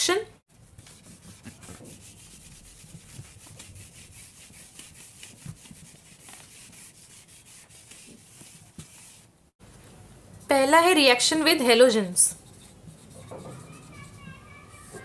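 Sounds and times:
pen scratching on paper: 0.7s - 9.2s, 12.4s - 15.0s.

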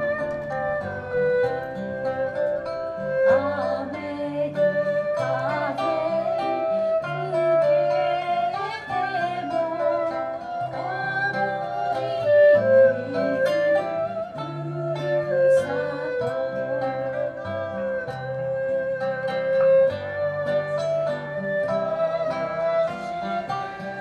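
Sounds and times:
acoustic guitars: 0.0s - 24.0s
erhu bowed melody: 0.0s - 24.0s.

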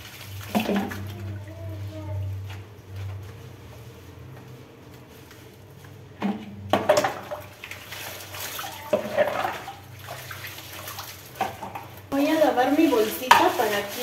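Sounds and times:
water splashing over vegetables: 0.0s - 3.8s, 4.8s - 14.0s.

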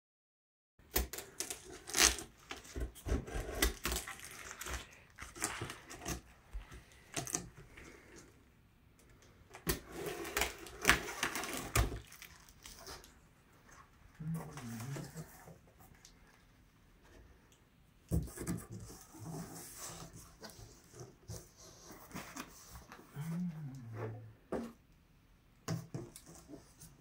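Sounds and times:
packing tape stripping: 0.9s - 2.8s.

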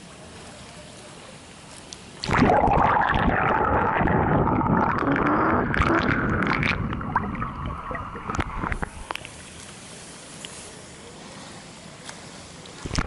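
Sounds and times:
pool ambience: 0.0s - 13.0s
underwater churning water and bubbles: 2.2s - 9.3s.

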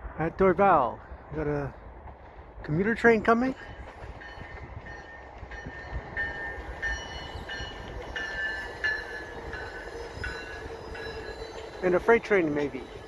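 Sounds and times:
train approaching: 0.0s - 13.0s
railway warning bell ringing: 3.2s - 13.0s.

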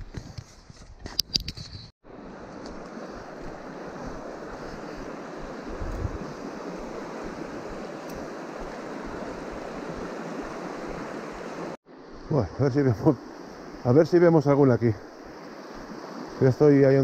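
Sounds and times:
river rushing over stones: 2.1s - 11.8s.

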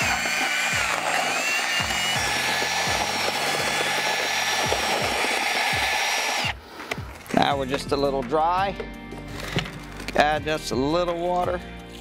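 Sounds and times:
drill motor whining: 0.0s - 6.6s
mixer churning mortar in bucket: 0.0s - 6.6s.

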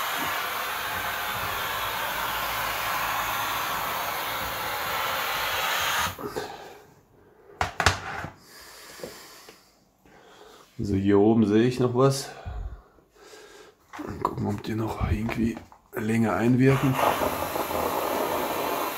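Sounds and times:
steam cleaner hissing: 0.0s - 6.3s, 16.6s - 18.9s.

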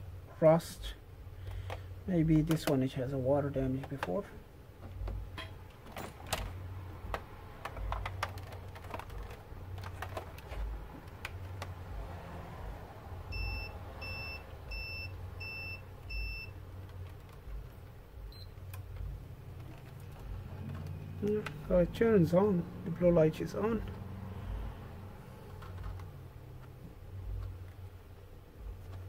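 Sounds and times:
steady low hum: 0.0s - 29.0s
plastic shell being handled: 3.7s - 11.8s, 18.8s - 21.7s.

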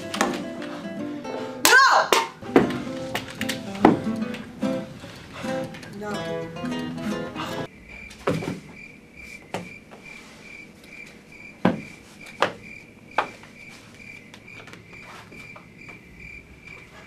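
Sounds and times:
cricket chirping: 7.6s - 17.0s
sharp knocks: 8.1s - 8.8s, 11.6s - 13.4s.

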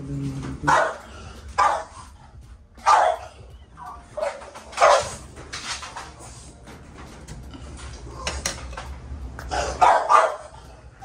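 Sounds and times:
dog barking: 0.6s - 2.1s, 2.8s - 3.4s, 4.2s - 5.2s, 9.7s - 10.6s.

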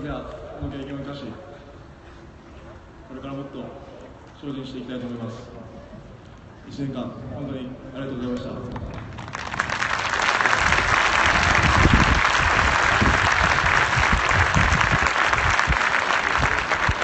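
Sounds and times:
stadium crowd applauding: 8.7s - 17.0s.

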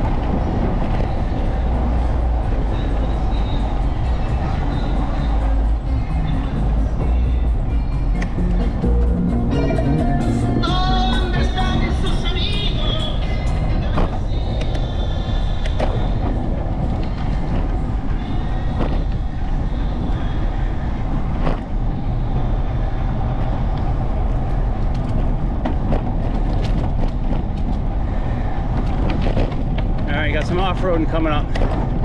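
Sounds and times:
wind rumble on microphone: 0.0s - 32.0s.

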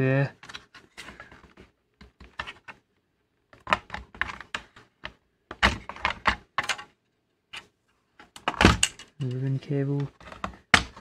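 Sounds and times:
hard plastic clicking and knocking: 3.6s - 6.9s, 10.0s - 11.0s.

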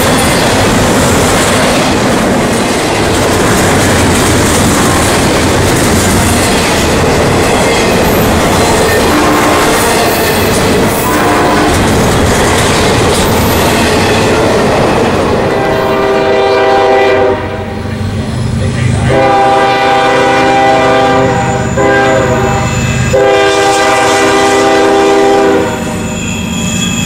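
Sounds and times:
train wheels clattering over rail joints: 0.0s - 15.4s
locomotive air horn blasts: 9.0s - 10.3s, 11.0s - 11.9s, 15.5s - 17.8s, 19.1s - 26.1s.

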